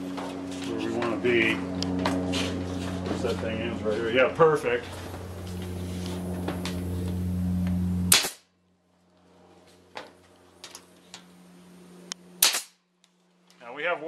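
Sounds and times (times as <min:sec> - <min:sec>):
steady low hum: 0:00.0 - 0:14.0
pneumatic stapler shots: 0:08.1 - 0:08.5, 0:12.4 - 0:12.8.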